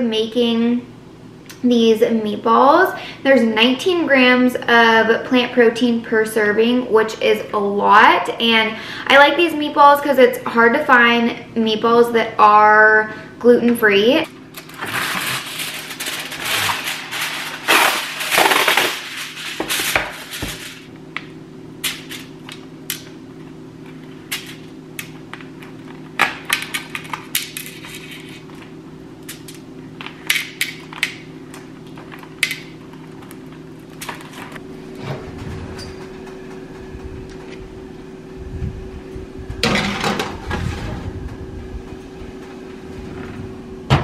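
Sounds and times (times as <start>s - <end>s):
steady low hum: 0.0s - 44.0s
plastic and foil crinkling: 14.5s - 20.9s, 25.8s - 28.6s
oven door thump: 43.2s - 44.0s.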